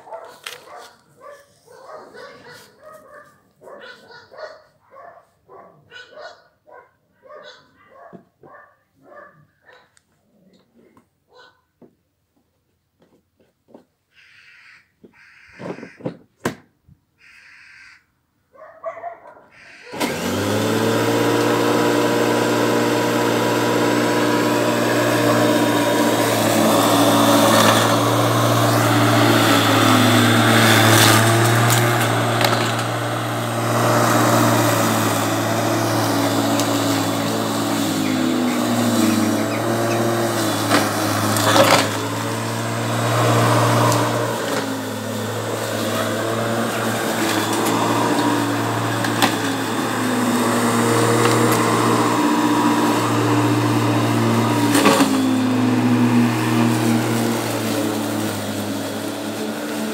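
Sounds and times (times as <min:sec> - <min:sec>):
electric lawn mower humming: 0:19.7 - 0:59.9.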